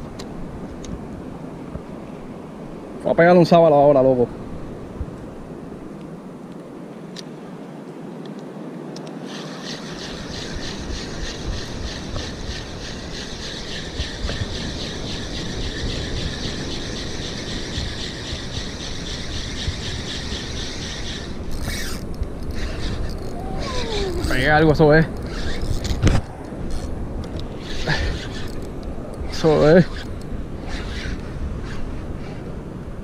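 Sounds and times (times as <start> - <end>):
wind: 0.0 - 33.0
spinning reel whirring: 9.2 - 26.1, 26.7 - 26.9, 27.6 - 31.9.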